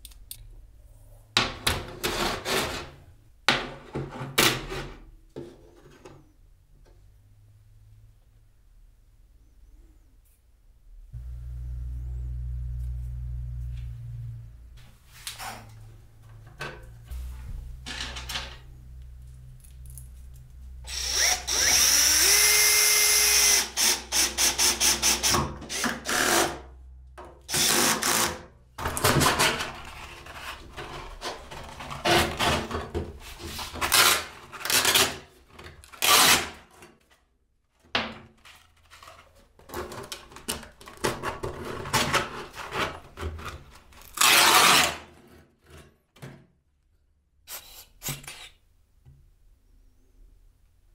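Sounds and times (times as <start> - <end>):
cordless drill driving screws: 20.9 - 26.4.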